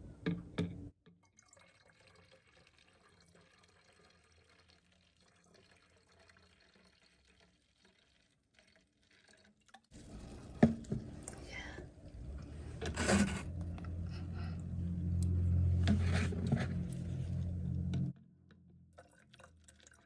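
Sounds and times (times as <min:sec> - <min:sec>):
liquid trickling into bottle: 0:01.2 - 0:11.8, 0:18.9 - 0:20.0.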